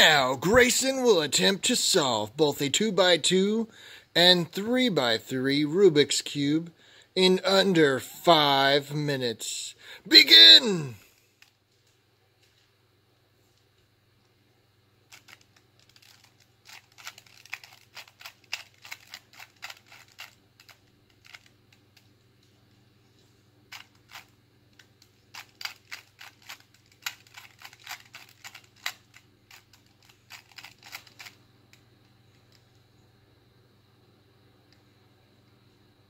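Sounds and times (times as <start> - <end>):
puzzle cube clicking turns: 15.1 - 22.0, 23.7 - 31.8.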